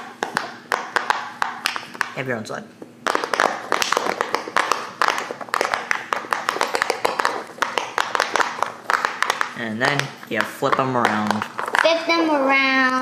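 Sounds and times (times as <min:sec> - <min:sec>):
silicone bubble toy popping: 0:03.0 - 0:12.0.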